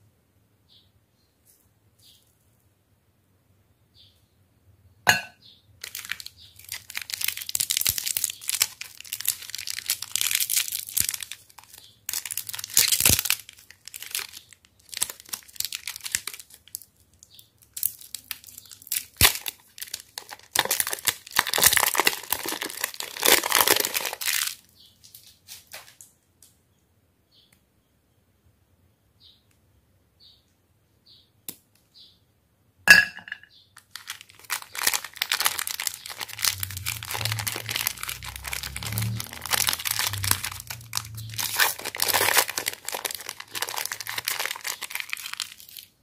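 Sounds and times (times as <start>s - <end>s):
plastic wrapper crinkling and tearing: 5.8s - 26.1s, 33.8s - 46.0s.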